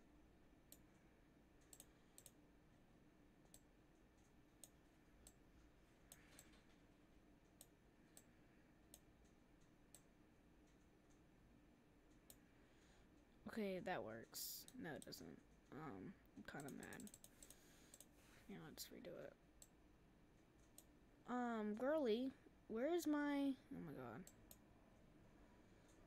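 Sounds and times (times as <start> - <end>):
low steady room hum: 0.0 - 26.0
faint irregular clicking: 0.6 - 2.4, 3.4 - 11.3, 16.5 - 18.1, 19.6 - 21.0.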